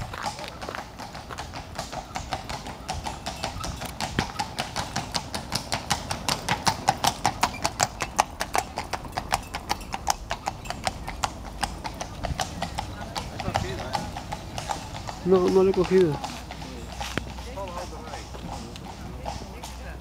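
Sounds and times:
horse hooves clip-clopping on pavement: 0.0s - 20.0s.

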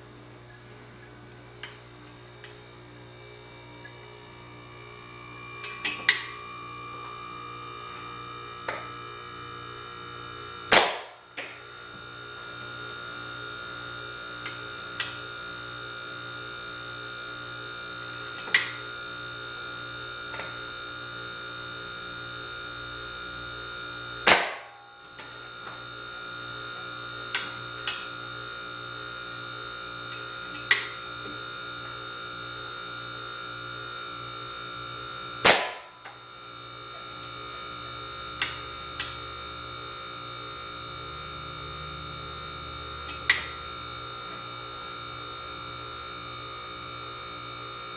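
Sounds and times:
electrical hum with high whine: 0.0s - 47.9s
air rifle shot pop: 10.7s - 11.2s, 24.3s - 24.7s, 35.4s - 35.9s.

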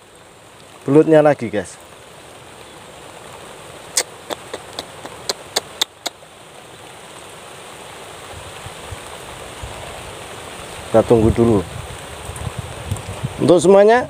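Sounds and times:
hiss of light drizzle: 0.0s - 14.0s
sharp clicks: 4.0s - 6.2s.

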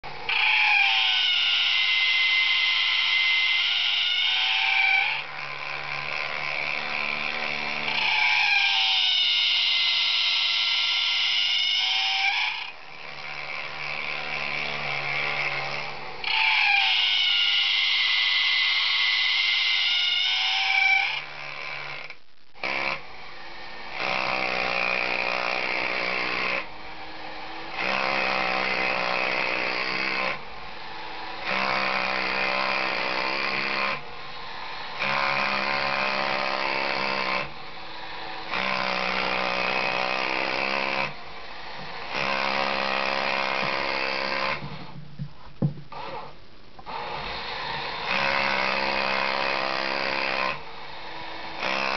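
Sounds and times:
toy electric motor whirring: 0.2s - 23.0s.

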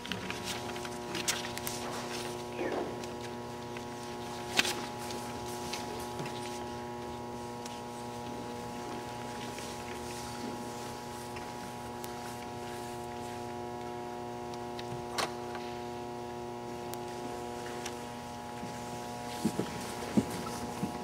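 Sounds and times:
multi-tone electrical hum: 0.0s - 21.0s.

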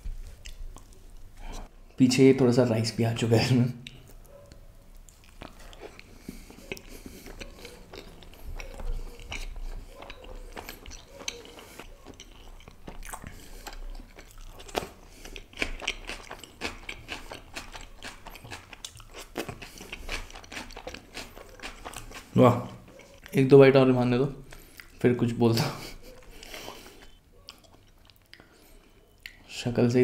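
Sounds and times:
close-up chewing: 0.0s - 1.7s, 3.8s - 29.6s
mouth clicks and smacks: 3.8s - 23.5s
bread crunching: 4.0s - 23.5s.

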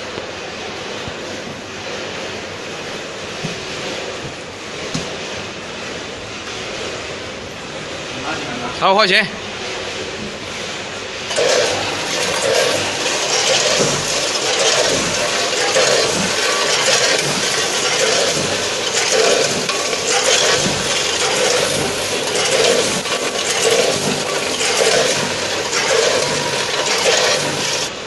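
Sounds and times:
steady machine noise: 0.0s - 28.0s
hopper gates clacking: 11.2s - 28.0s
small pieces rattling down metal chutes: 11.3s - 27.9s.

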